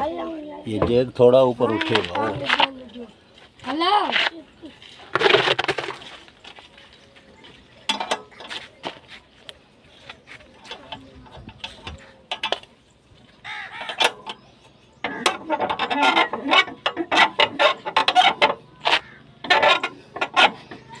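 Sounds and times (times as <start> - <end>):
car jack clicking and creaking: 7.8 - 9.0, 10.6 - 21.0.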